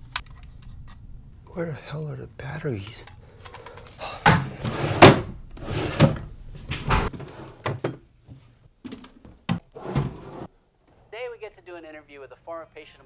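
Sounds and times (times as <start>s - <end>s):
drawers sliding and knocking: 4.3s - 8.0s, 8.9s - 10.5s.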